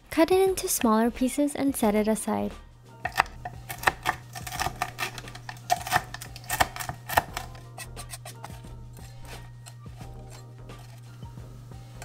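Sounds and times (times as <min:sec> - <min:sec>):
knife chopping crisp bacon: 0:03.0 - 0:11.2.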